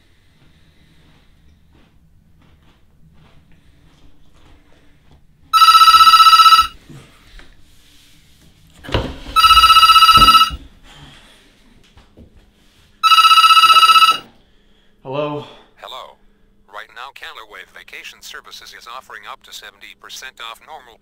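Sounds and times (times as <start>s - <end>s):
telephone ringing electronic trill: 5.6s - 6.8s, 9.4s - 10.6s, 13.0s - 14.3s.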